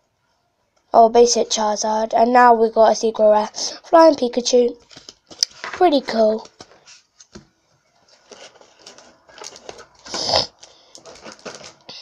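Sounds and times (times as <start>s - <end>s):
foil wrapper crinkling: 4.8s - 7.4s, 8.1s - 12.0s.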